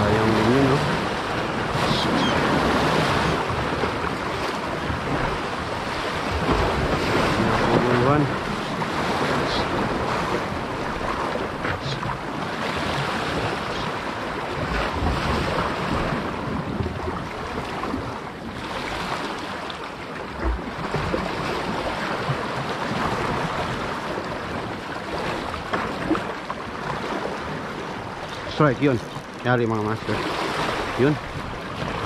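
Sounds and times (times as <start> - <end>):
wind buffeting microphone: 0.0 - 18.8
sea waves washing on shore: 0.0 - 32.0.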